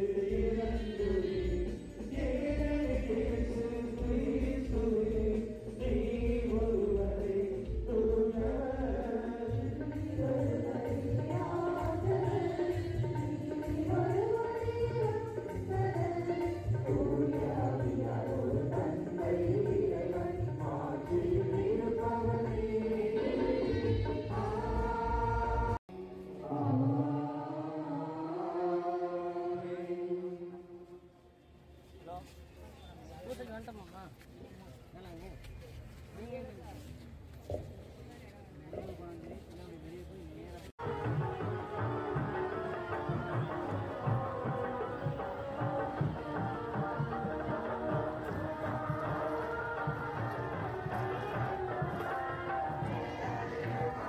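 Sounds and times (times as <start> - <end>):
choir chanting over loudspeakers: 0.0 - 31.3, 40.8 - 54.0.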